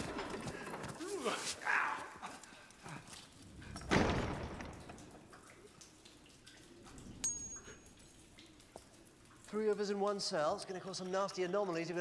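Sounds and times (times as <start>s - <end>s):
heavy door slamming shut: 3.8s - 4.8s.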